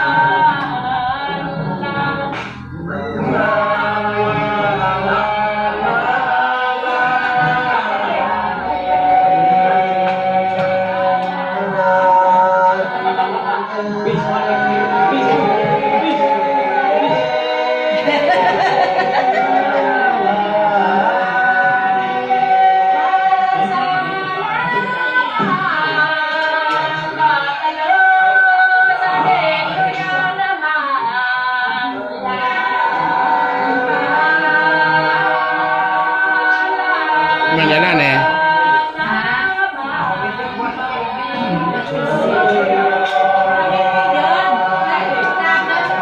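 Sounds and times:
group singing without instruments: 0.0 - 46.0.

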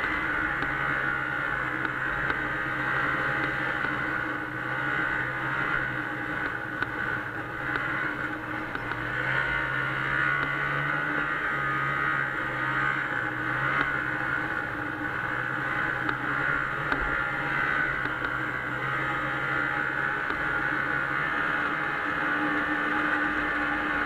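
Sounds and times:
snowmobile engine running: 0.0 - 24.0.

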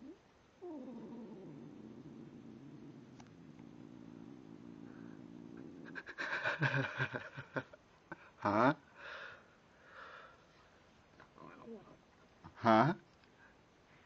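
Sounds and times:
cat grumbling cries: 0.0 - 6.1
cat purring: 0.0 - 6.7.

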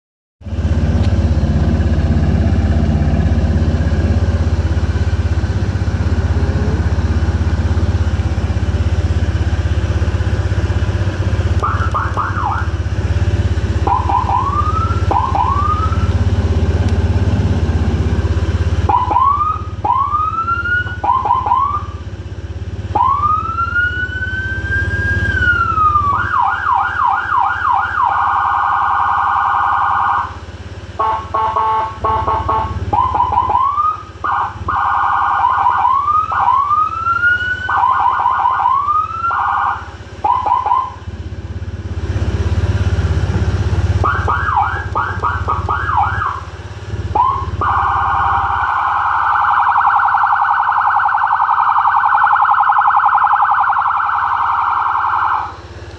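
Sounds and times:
scooter engine idling: 0.4 - 36.8, 37.7 - 55.9
electronic siren tones: 11.6 - 12.9, 13.7 - 16.5, 18.8 - 22.0, 22.9 - 30.4, 31.0 - 41.0, 43.9 - 55.6.

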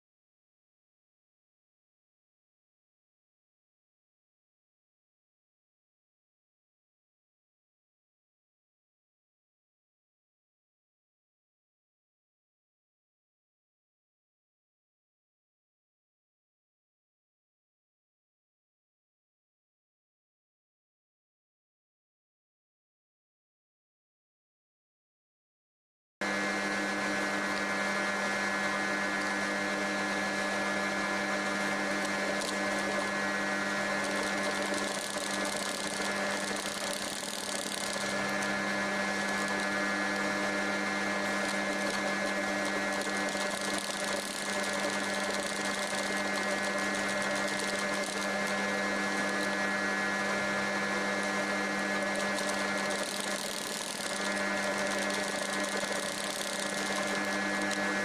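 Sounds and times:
sewing machine stitching: 29.0 - 58.0.

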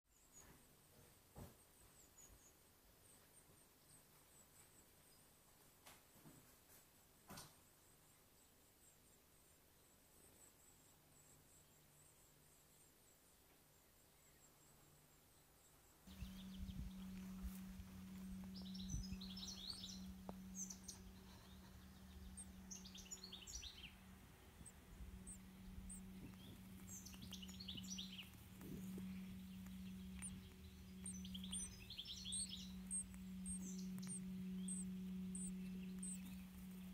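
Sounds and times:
steady low hum: 7.9 - 36.9
nestlings begging chirps: 16.1 - 36.9.

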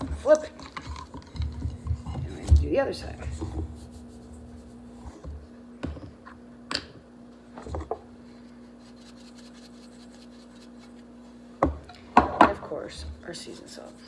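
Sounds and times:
steady low hum: 0.0 - 14.0
knocks and taps of kitchenware: 11.6 - 12.6.

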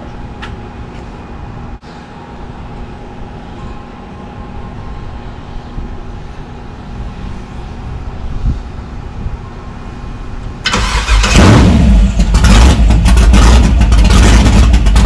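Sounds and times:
wind buffeting microphone: 5.7 - 10.6.

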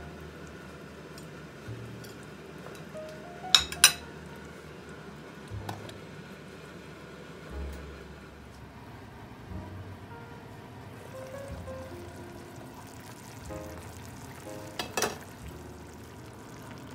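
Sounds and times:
cookware clinking: 3.5 - 4.1, 14.7 - 15.3.

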